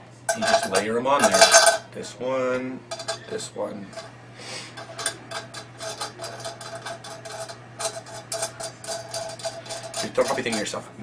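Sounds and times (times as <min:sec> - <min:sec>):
nuts rattling on metal bolt: 0:00.3 - 0:01.8.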